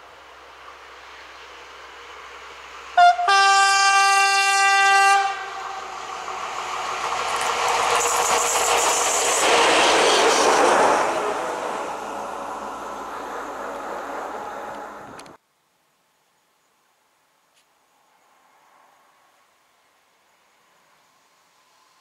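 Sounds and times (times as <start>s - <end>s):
locomotive engine and wheels on rails: 0.0s - 15.4s, 17.8s - 22.0s
locomotive horn blast: 3.0s - 6.0s.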